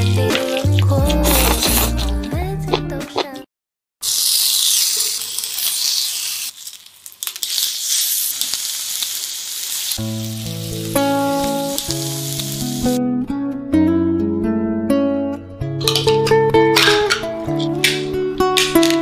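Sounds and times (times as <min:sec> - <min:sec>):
meat sizzling on a grill: 0:04.0 - 0:13.0
plucked-string music: 0:10.0 - 0:19.0.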